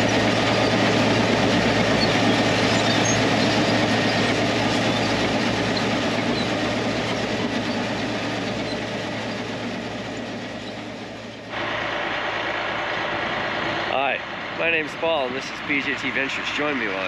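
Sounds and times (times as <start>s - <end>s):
steel tracks clattering: 0.0s - 11.5s
dozer diesel engine running: 0.0s - 17.0s
dozer engine idling: 0.0s - 17.0s.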